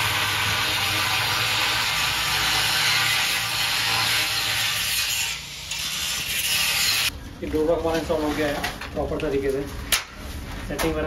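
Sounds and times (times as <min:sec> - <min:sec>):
angle grinder grinding steel: 0:00.0 - 0:07.1.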